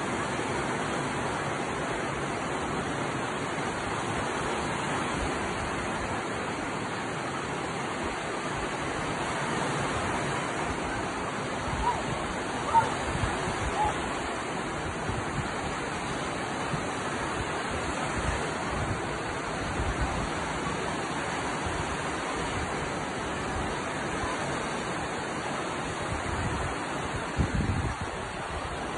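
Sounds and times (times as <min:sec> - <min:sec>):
surf breaking on beach: 0:00.0 - 0:28.9
wind rumbling on microphone: 0:08.0 - 0:24.8, 0:25.8 - 0:28.9.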